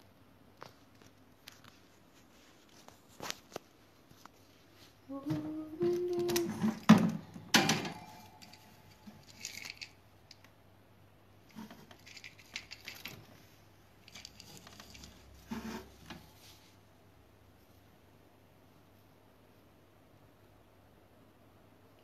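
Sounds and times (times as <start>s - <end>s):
scratching on hard plastic: 11.5s - 13.4s, 14.1s - 16.6s.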